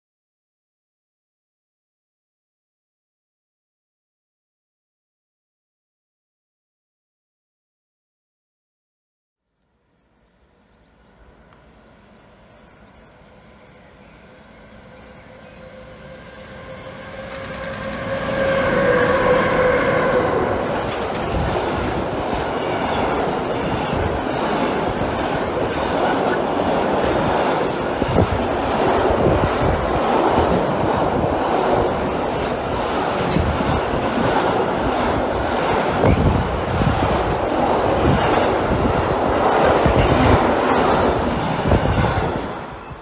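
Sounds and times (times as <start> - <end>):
train rumble: 10.3 - 43.0
train horn tone: 14.5 - 21.2
train wheel clatter: 16.1 - 43.0.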